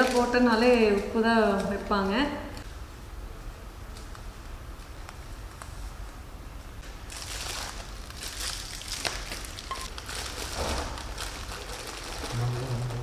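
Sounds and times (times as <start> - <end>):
foil and plastic packet crinkling: 0.0 - 1.9, 7.0 - 13.0.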